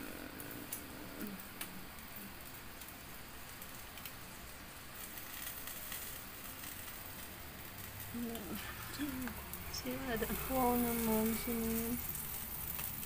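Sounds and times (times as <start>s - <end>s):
meat sizzling on a grill: 0.0s - 13.0s
small crackles: 0.0s - 13.0s.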